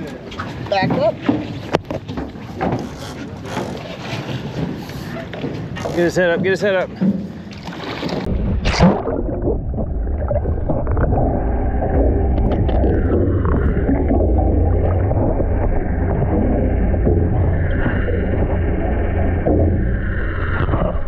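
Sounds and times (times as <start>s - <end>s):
muffled rumble of water and boat: 0.0s - 21.0s
splash-like rush: 7.5s - 21.0s
water gurgling: 7.7s - 21.0s.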